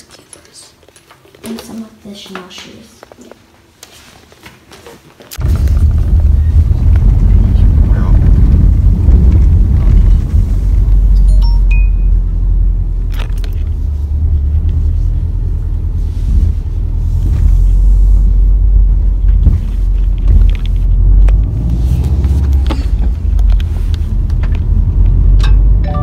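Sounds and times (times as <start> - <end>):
car driving rumble inside cabin: 5.4 - 26.0.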